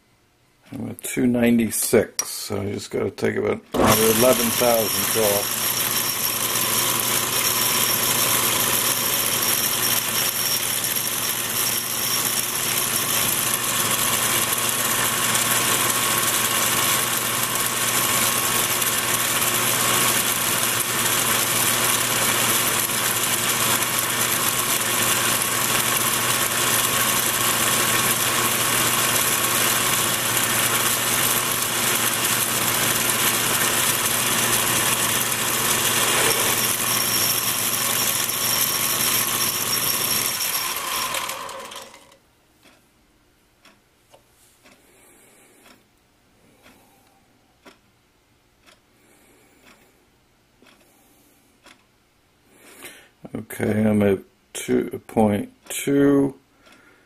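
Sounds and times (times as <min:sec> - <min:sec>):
lathe turning metal rod: 0:03.8 - 0:42.2.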